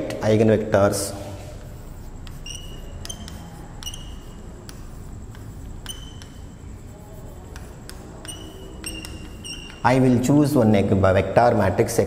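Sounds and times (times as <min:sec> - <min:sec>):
chalk squeaking: 0:01.0 - 0:10.3
chalk tapping on blackboard: 0:01.1 - 0:10.1.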